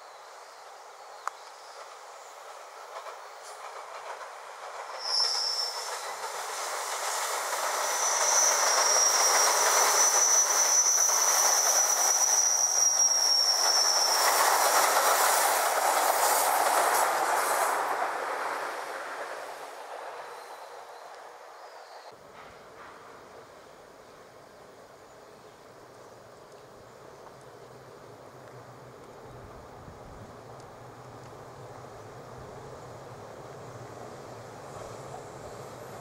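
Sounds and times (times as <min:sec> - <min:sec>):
train wheel and rail noise: 0:00.0 - 0:36.0
high wheel squeal: 0:04.9 - 0:06.2, 0:07.8 - 0:14.6.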